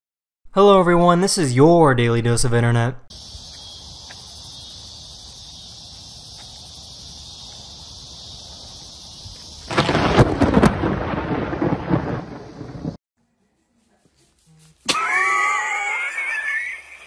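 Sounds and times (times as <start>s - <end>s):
steady high-pitched hiss: 3.1s - 11.7s
thunderclap cracking and rumbling: 8.4s - 13.0s.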